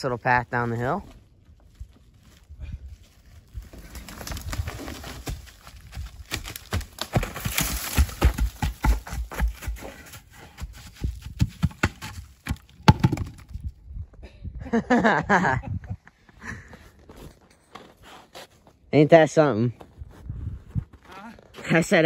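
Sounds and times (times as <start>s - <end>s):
log tumbling down slope: 3.5s - 13.7s.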